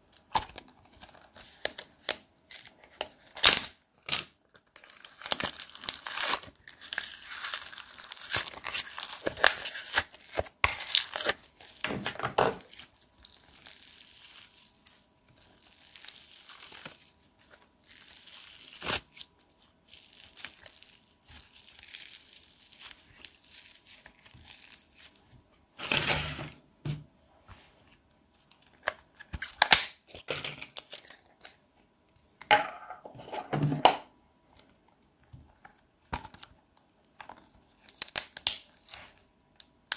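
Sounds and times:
foam bead clay crackling: 4.6 - 25.4.

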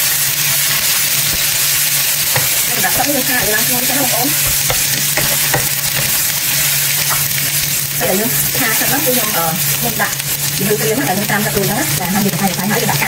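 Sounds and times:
mushrooms sizzling in oil: 0.0 - 13.0
spatula scraping and tapping pan: 1.2 - 9.4.

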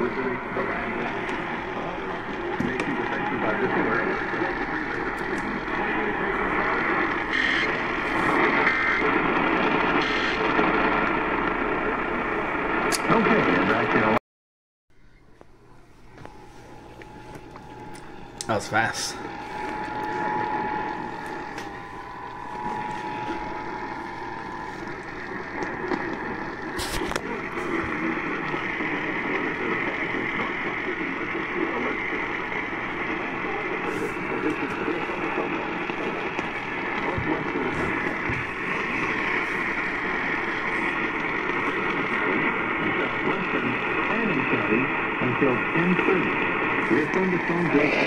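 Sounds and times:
radio broadcast through small speaker: 0.0 - 14.2, 16.0 - 48.0
radio static hiss: 0.0 - 14.2, 16.1 - 48.0.

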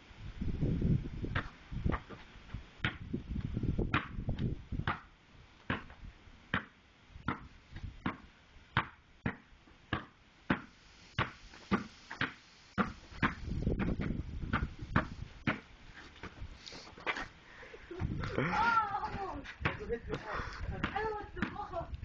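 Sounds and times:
basketball bouncing on concrete: 2.8 - 3.1, 3.8 - 15.7, 19.0 - 21.8.

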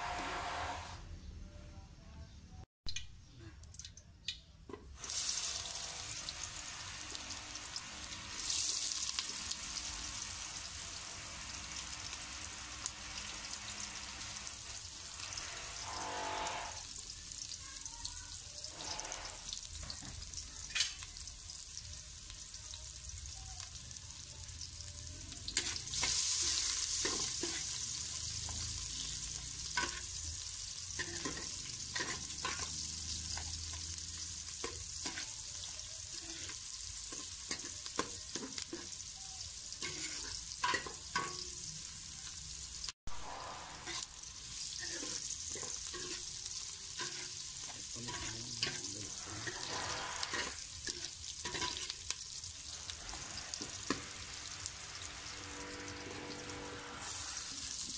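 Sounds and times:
onion frying in oil: 2.9 - 57.9
metal ladle scraping pot: 15.4 - 17.0, 43.1 - 44.1, 44.7 - 46.3, 48.1 - 52.0.

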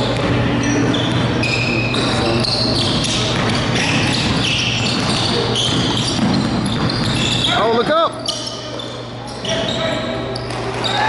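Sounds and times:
steady low hum: 0.0 - 10.8
sneakers squeaking: 0.0 - 11.0
basketball dribbling on hardwood: 2.8 - 7.2.

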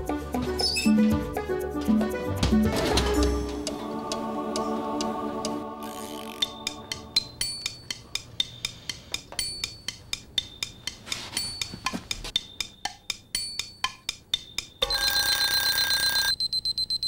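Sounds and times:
kitchen timers ticking: 6.4 - 17.0.

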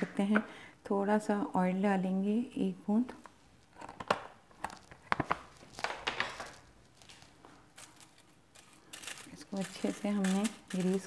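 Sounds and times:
paper-like rustles: 4.8 - 11.0.

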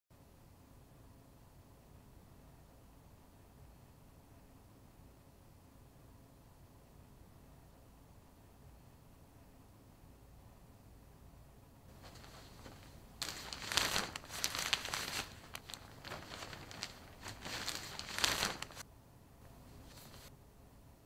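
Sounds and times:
paper crinkling: 11.9 - 18.8, 19.7 - 20.3.

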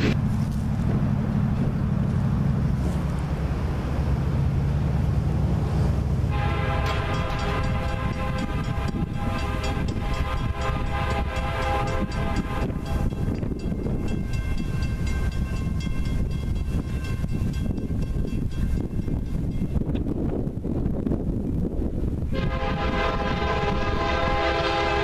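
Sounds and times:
train rumbling: 0.0 - 25.0
locomotive air horn chord: 6.3 - 13.1, 22.3 - 25.0.

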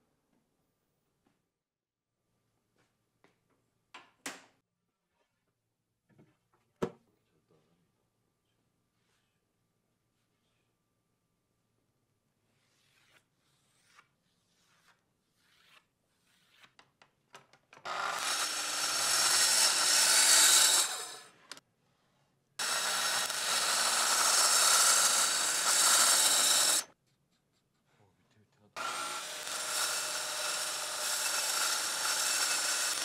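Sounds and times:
track saw cutting plywood: 17.8 - 21.6, 22.6 - 26.9, 28.8 - 33.0.

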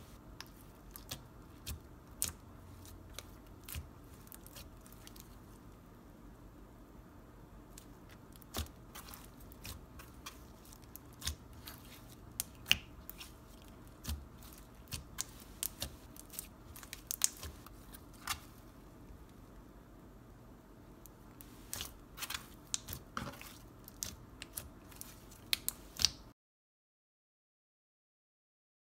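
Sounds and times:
slime clicking and popping: 12.3 - 13.3, 13.9 - 17.6, 24.0 - 26.3.

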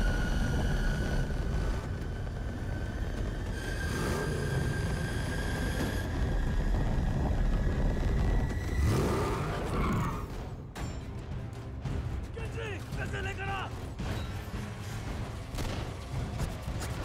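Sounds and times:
engine rumbling and revving: 0.0 - 10.6.

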